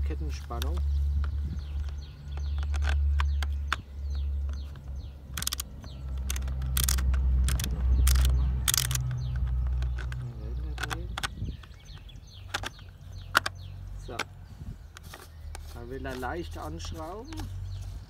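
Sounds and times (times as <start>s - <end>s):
birds chirping faintly: 0.0s - 18.0s
wind rumbling on microphone: 0.3s - 15.7s
plastic clicks and knocks: 0.4s - 14.3s.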